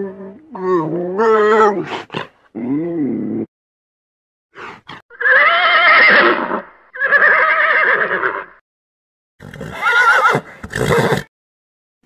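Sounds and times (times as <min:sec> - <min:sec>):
horse whinnying: 0:05.1 - 0:08.6, 0:09.4 - 0:11.3.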